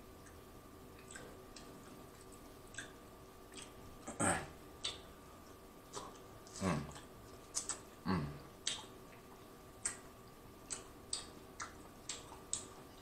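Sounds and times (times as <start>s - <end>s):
mouth clicks while chewing: 0.2s - 3.8s, 4.8s - 5.1s, 5.9s - 8.0s, 8.6s - 13.0s
wet lip smacks: 5.9s - 8.0s, 8.6s - 9.2s, 9.8s - 12.7s.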